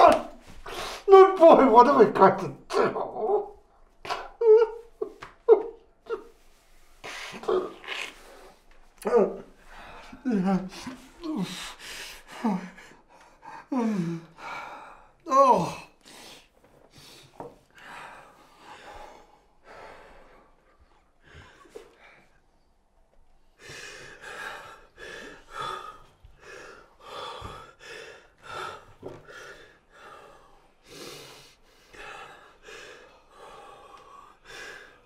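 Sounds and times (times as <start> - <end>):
man sobbing: 1.0 - 6.4, 9.0 - 14.4, 15.2 - 16.0.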